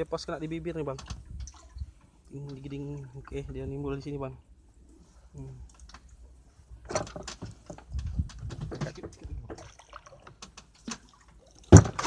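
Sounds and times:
water splashing and dripping: 0:00.0 - 0:04.1, 0:05.6 - 0:12.0
small clicks and knocks: 0:00.9 - 0:02.8, 0:05.6 - 0:06.2, 0:06.8 - 0:12.0.

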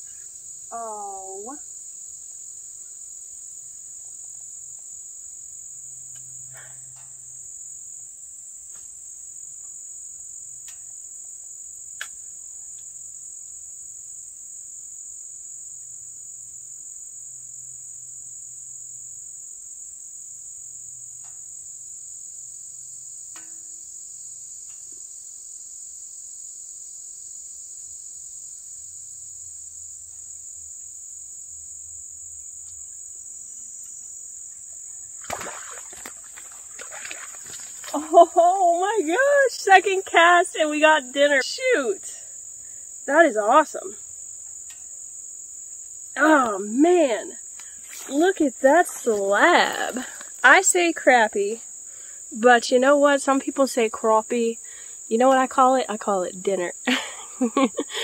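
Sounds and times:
insects chirring: 0:00.0 - 0:58.0
faint ticks: 0:06.0 - 0:07.4, 0:08.7 - 0:09.0, 0:10.6 - 0:13.0, 0:21.1 - 0:21.6, 0:23.3 - 0:23.8, 0:24.6 - 0:25.1, 0:32.6 - 0:33.0, 0:33.8 - 0:34.0, 0:44.4 - 0:45.0, 0:47.4 - 0:48.1.

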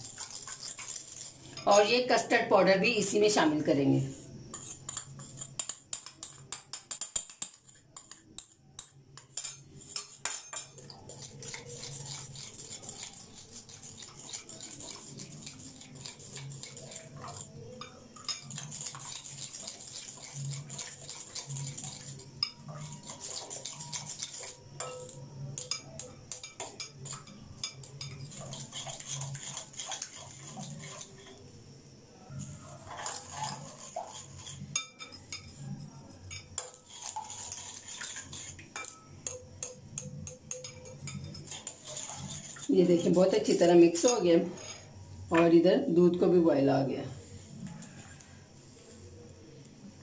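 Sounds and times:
spoon clinking against glass bowl: 0:04.5 - 0:31.4, 0:32.7 - 0:44.8.

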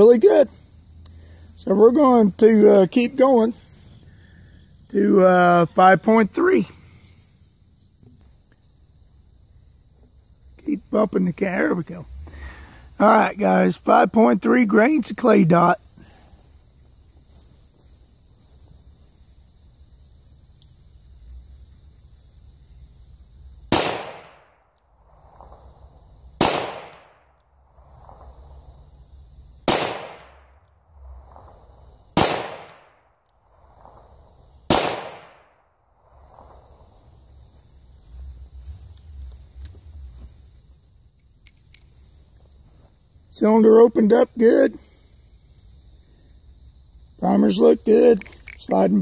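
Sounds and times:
high insect chirring: 0:00.0 - 0:49.0
revolver gunshots: 0:23.7 - 0:24.6, 0:26.4 - 0:27.3, 0:29.6 - 0:30.6, 0:32.1 - 0:33.0, 0:34.7 - 0:35.6.

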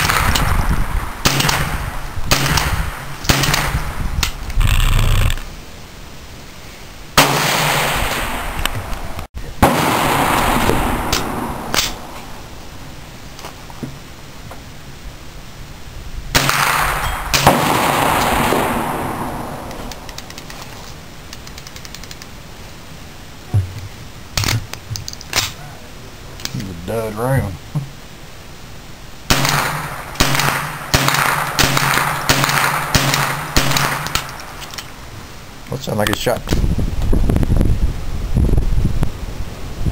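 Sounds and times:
rifle gunshots with echo: 0:00.0 - 0:04.0, 0:07.2 - 0:08.7, 0:09.6 - 0:12.4, 0:16.3 - 0:20.1, 0:29.3 - 0:34.6
faint sharp clicks: 0:19.6 - 0:22.3.

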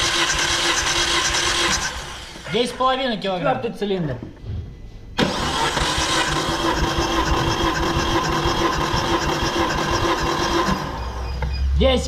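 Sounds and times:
engine cranked by starter motor: 0:00.0 - 0:02.5, 0:05.2 - 0:11.5.

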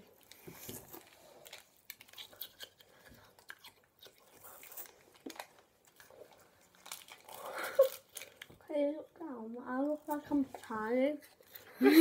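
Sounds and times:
ice lolly crunching being bitten: 0:01.9 - 0:05.5.

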